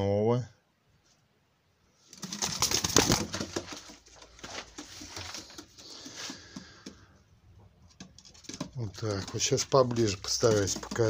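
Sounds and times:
pigeons rustling and scuffling: 0:02.1 - 0:11.0.

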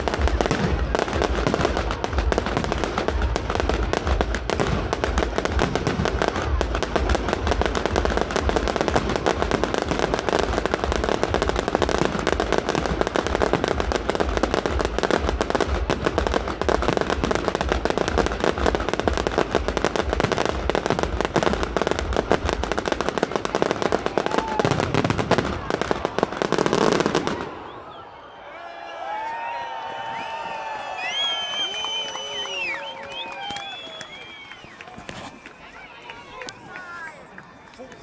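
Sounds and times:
deep firework thuds: 0:00.0 - 0:27.6
fireworks bursting and crackling: 0:00.0 - 0:27.8, 0:29.4 - 0:38.0.

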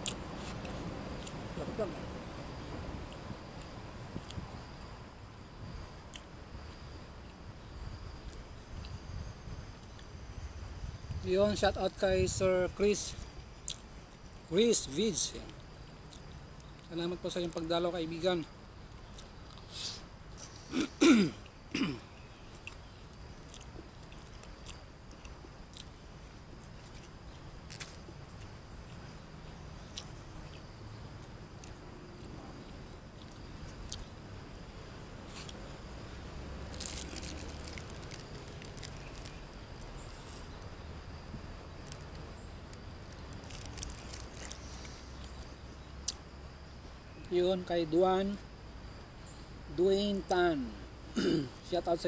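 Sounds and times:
faint chewing: 0:00.0 - 0:01.4, 0:13.6 - 0:14.4, 0:15.5 - 0:16.9, 0:18.9 - 0:20.8, 0:22.4 - 0:34.2, 0:35.2 - 0:35.7, 0:36.6 - 0:40.7, 0:41.8 - 0:46.2
high insect drone: 0:00.0 - 0:52.0
man clearing his throat: 0:20.7 - 0:22.1, 0:51.2 - 0:51.6.

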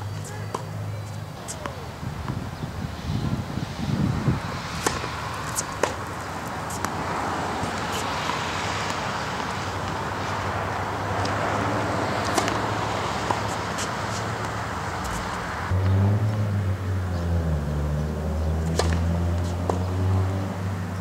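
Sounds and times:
ball bouncing on hard court: 0:04.7 - 0:06.1, 0:12.2 - 0:15.4
racket strings hitting tennis ball: 0:04.7 - 0:15.5, 0:18.7 - 0:19.9.

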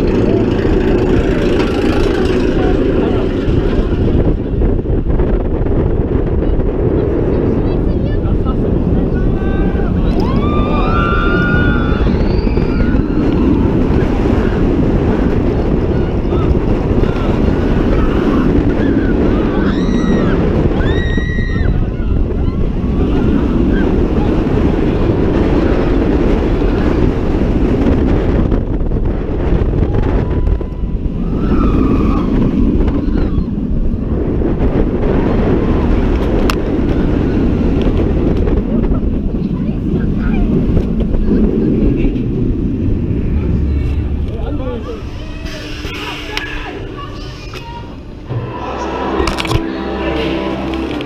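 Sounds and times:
roller coaster train rumble: 0:00.0 - 0:51.0
wind rushing over microphone: 0:00.0 - 0:51.0
riders screaming: 0:09.3 - 0:14.6, 0:16.2 - 0:24.2, 0:29.9 - 0:33.8.

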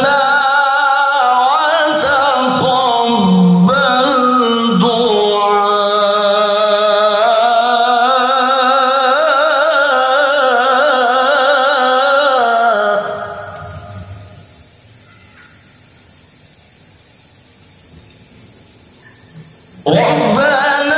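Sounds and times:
man's melodic recitation: 0:00.0 - 0:13.9, 0:19.8 - 0:20.9.

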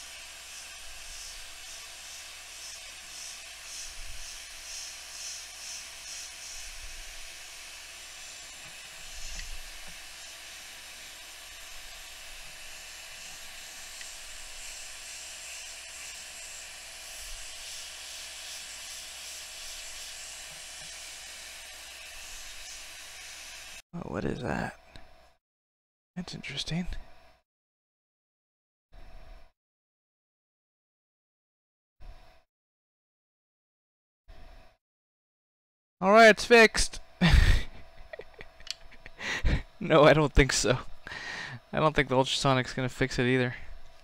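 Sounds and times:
air hissing: 0:00.0 - 0:23.8.

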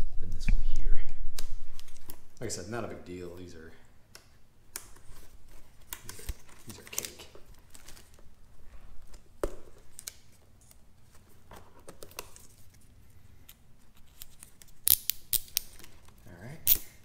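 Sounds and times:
plastic wire ties clicking: 0:13.4 - 0:17.0.

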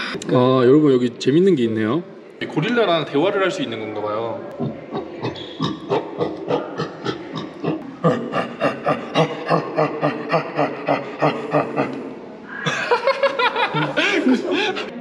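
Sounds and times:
gorilla grunting: 0:04.5 - 0:13.0.

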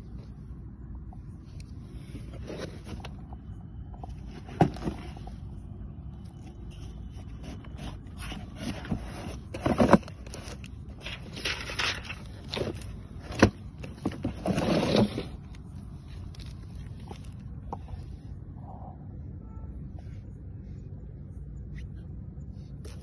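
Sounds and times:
cardboard scraping and rustling: 0:01.9 - 0:05.6, 0:06.3 - 0:18.1.

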